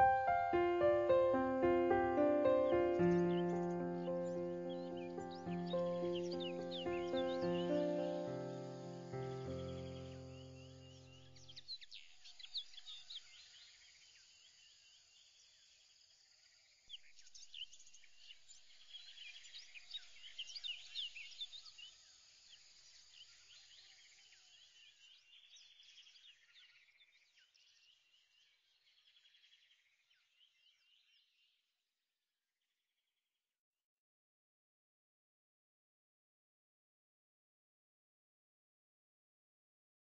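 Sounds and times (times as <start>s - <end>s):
small birds chirping: 0.0s - 15.8s, 16.9s - 31.6s.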